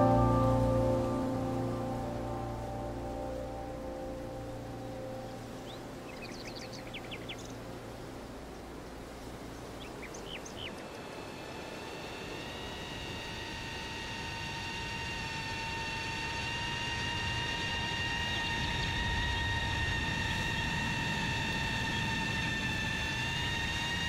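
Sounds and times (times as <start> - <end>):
background music: 0.0 - 7.0
bird chirping: 0.0 - 11.0
drone propeller wash: 0.0 - 24.0
high-pitched electric motor whine: 0.0 - 24.0.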